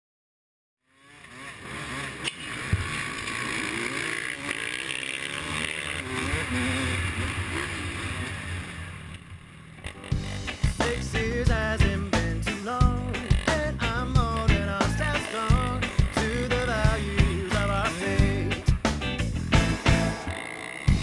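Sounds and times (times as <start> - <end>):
motocross engines revving: 0.8 - 21.0
music: 10.1 - 21.0.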